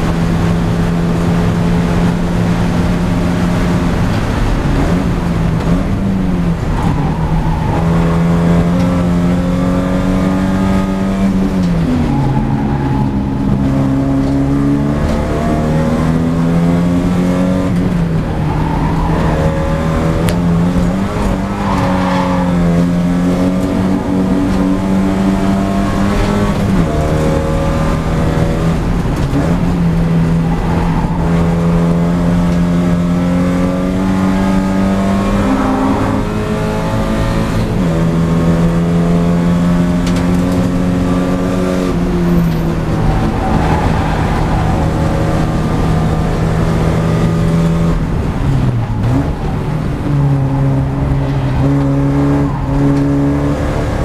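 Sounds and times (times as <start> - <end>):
race car engine at high revs: 0.0 - 54.0.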